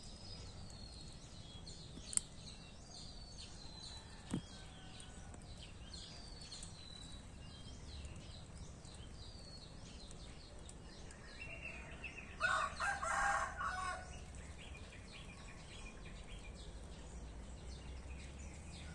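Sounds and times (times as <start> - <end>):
small birds chirping: 0.0 - 18.9
rooster crowing: 12.4 - 14.1.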